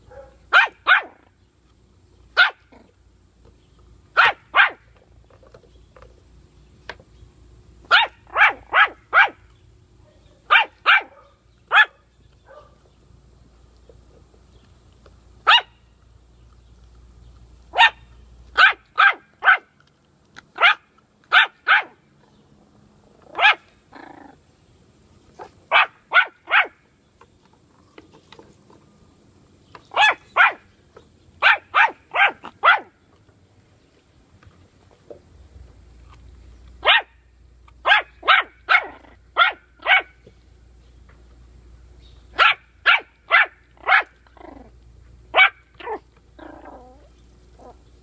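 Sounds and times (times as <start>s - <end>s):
puppy yapping: 0.1s - 1.3s, 4.2s - 4.8s, 7.9s - 9.4s, 10.5s - 12.8s, 15.4s - 15.8s, 17.7s - 19.7s, 20.6s - 22.0s, 23.2s - 24.4s, 25.4s - 26.8s, 29.9s - 30.6s, 31.4s - 32.9s, 36.8s - 37.2s, 37.8s - 40.2s, 42.3s - 44.7s, 45.3s - 47.8s.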